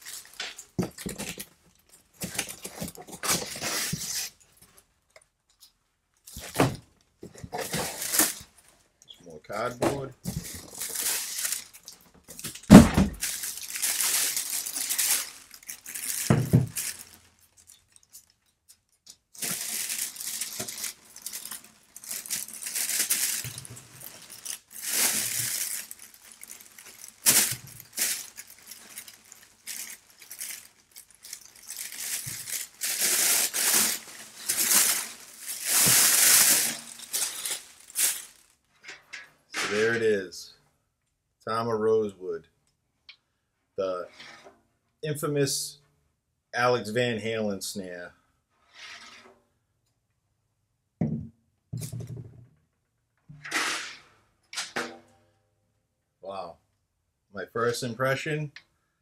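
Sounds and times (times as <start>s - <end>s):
cardboard and packing rustling: 0.0s - 4.9s, 6.3s - 8.9s, 9.9s - 18.3s, 19.3s - 38.5s.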